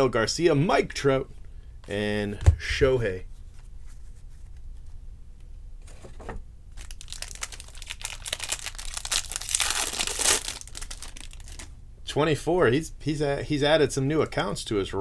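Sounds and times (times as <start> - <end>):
foil wrapper crinkling: 6.7 - 11.7.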